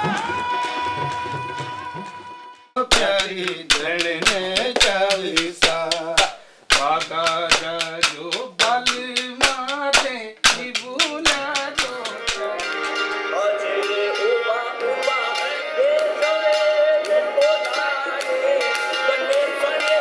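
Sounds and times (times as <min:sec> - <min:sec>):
steady hand claps: 0:02.8 - 0:12.9
men singing together: 0:02.8 - 0:20.0.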